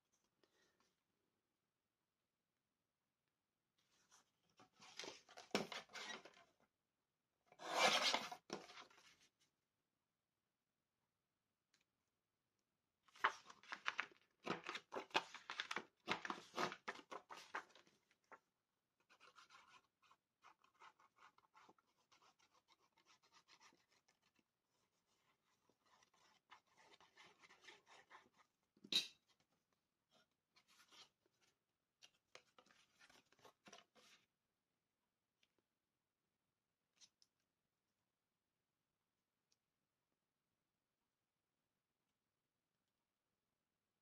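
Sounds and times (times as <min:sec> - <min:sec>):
paper rustling: 0:13.1 - 0:18.4.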